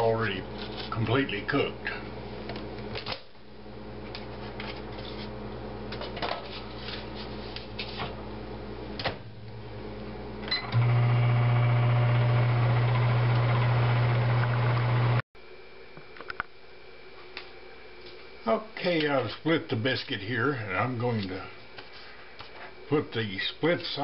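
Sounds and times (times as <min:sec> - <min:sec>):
microwave oven humming: 0:08.2 - 0:15.2.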